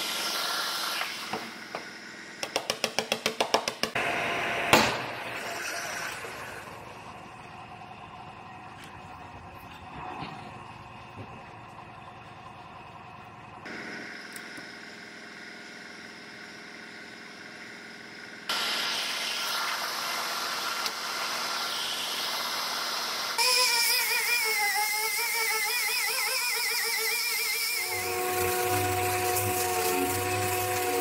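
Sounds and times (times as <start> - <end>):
machine hum: 4.0 - 31.0
electric disc sander on metal: 18.5 - 31.0.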